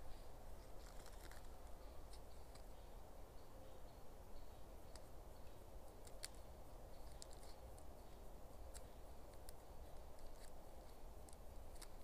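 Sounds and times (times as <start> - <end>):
clicks and rustles of small objects: 0.5 - 2.7.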